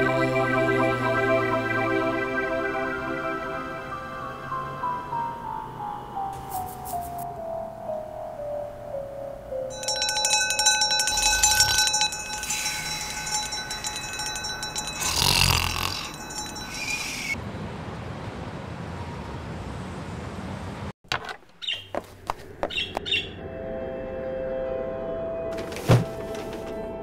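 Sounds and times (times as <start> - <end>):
mechanical bell ringing rapidly: 9.7 - 17.4.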